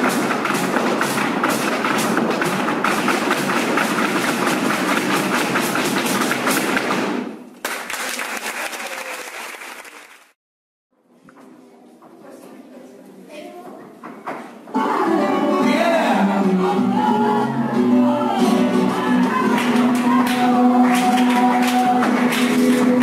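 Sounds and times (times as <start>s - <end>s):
flamenco music: 0.0s - 7.4s, 14.6s - 23.0s
applause: 7.6s - 10.4s, 19.5s - 23.0s.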